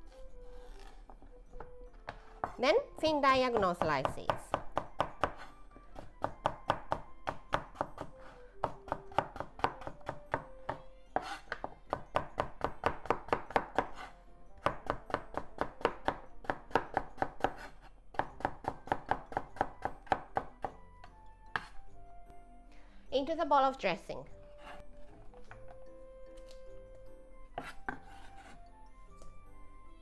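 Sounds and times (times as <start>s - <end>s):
knife slicing on wooden board: 27.5s - 28.6s.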